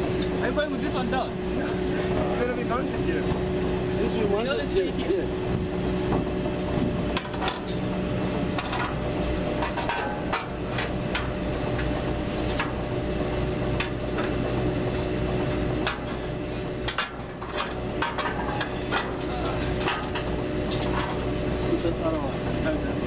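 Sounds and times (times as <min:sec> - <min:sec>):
low machine hum: 0:00.0 - 0:23.0.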